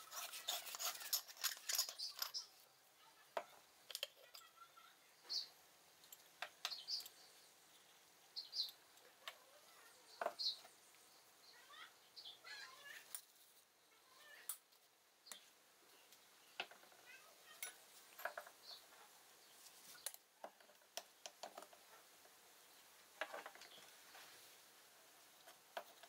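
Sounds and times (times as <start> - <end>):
metal pot parts clicking: 0.0 - 2.5, 3.9 - 4.6.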